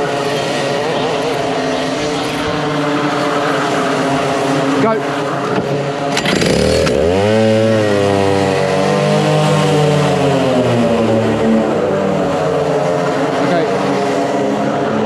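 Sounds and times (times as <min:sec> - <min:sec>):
two-stroke kart engine revving: 0:00.0 - 0:15.0.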